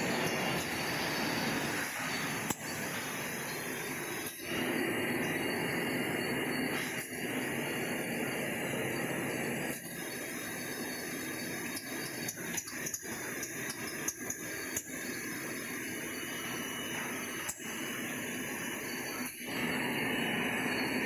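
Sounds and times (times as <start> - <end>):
packing machinery running: 0.0 - 10.7
sharp machine clicks: 11.7 - 15.0.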